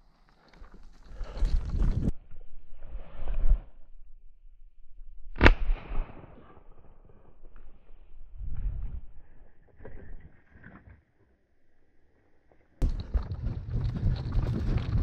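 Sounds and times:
shotgun shot with echo: 0:05.4 - 0:06.5.

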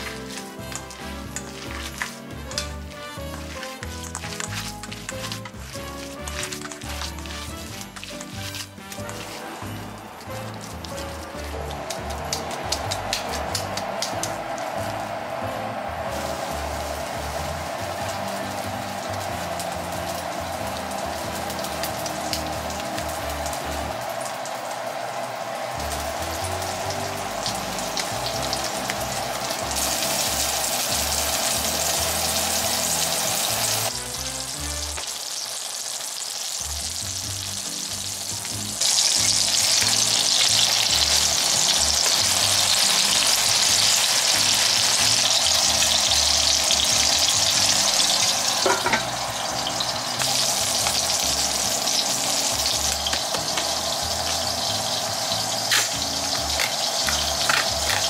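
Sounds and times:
patties sizzling in a frying pan: 0:00.0 - 0:15.1, 0:15.9 - 0:58.0
quiet background music: 0:00.0 - 0:58.0.

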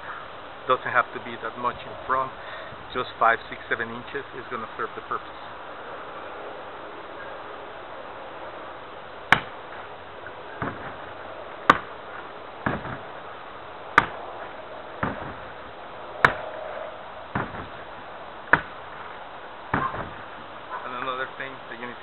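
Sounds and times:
hand strikes on punching bag: 0:09.3 - 0:09.6, 0:11.7 - 0:11.9, 0:12.6 - 0:13.1, 0:14.0 - 0:14.2, 0:15.0 - 0:15.5, 0:16.2 - 0:16.5, 0:17.4 - 0:17.8, 0:18.5 - 0:18.8.

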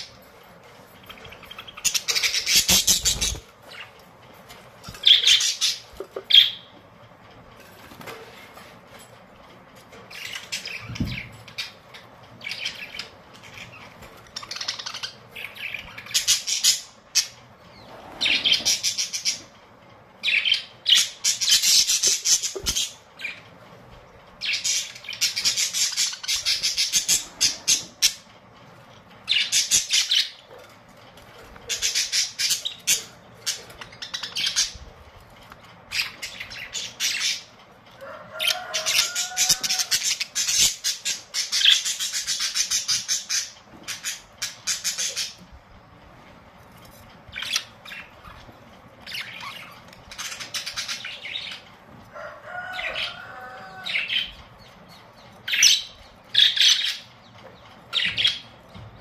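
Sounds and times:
budgerigars chattering and chirping: 0:01.0 - 0:04.0, 0:04.9 - 0:06.7, 0:10.1 - 0:17.4, 0:24.4 - 0:28.2, 0:29.3 - 0:30.6, 0:31.5 - 0:34.8, 0:38.3 - 0:45.4, 0:47.3 - 0:51.6, 0:52.5 - 0:58.9.

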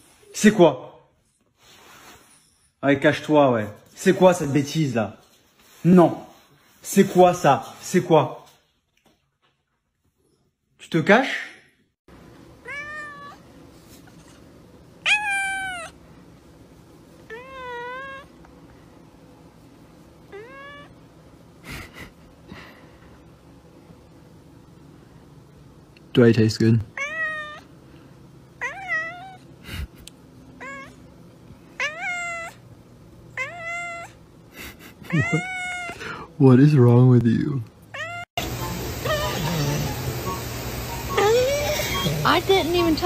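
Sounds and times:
cat meowing: 0:12.6 - 0:13.5, 0:15.0 - 0:16.0, 0:17.3 - 0:18.3, 0:20.3 - 0:21.0, 0:26.9 - 0:27.7, 0:28.6 - 0:29.5, 0:30.6 - 0:31.0, 0:31.8 - 0:32.6, 0:33.4 - 0:34.2, 0:35.1 - 0:36.0, 0:37.9 - 0:38.3, 0:39.0 - 0:39.9.

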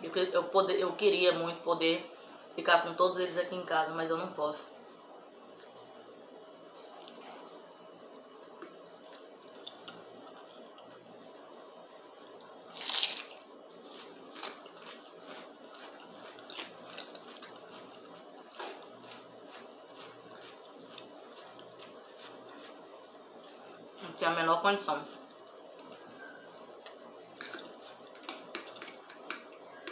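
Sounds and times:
chewing and wet mouth sounds: 0:05.4 - 0:07.6, 0:08.3 - 0:11.1, 0:12.4 - 0:24.2, 0:25.0 - 0:29.9
fork scraping plastic plate: 0:27.3 - 0:29.9.

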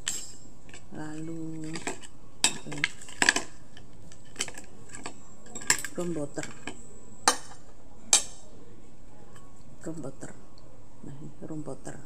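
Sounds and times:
cutlery clinking on a plate: 0:00.0 - 0:08.4.

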